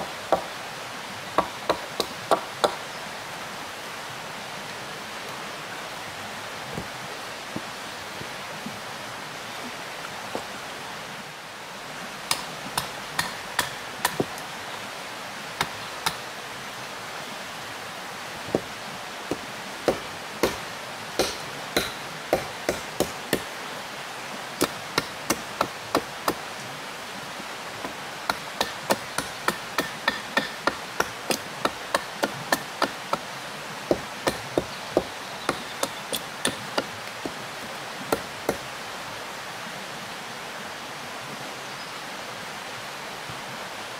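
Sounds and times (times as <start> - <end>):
river water rushing: 0.0 - 43.9
tool striking wood: 12.3 - 14.4, 19.3 - 20.6, 21.2 - 23.5, 27.8 - 33.2, 33.9 - 37.4.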